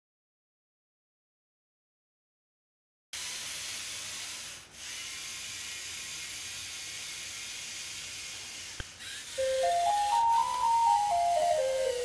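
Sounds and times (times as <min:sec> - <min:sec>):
simple melody of stepping tones: 0:09.4 - 0:12.0.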